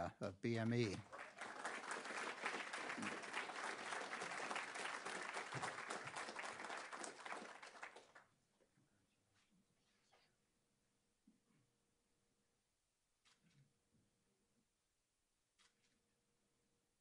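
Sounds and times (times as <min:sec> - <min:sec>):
audience applauding: 0:00.6 - 0:08.3.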